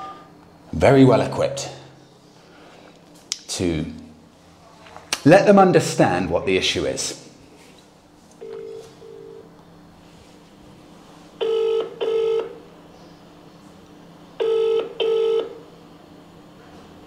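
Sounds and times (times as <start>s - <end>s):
telephone ringing tone: 8.4s - 9.5s, 11.4s - 12.6s, 14.4s - 15.6s.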